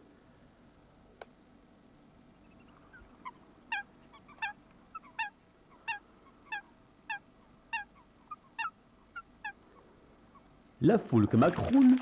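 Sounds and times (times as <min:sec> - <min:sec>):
coot calling: 0:02.4 - 0:10.6.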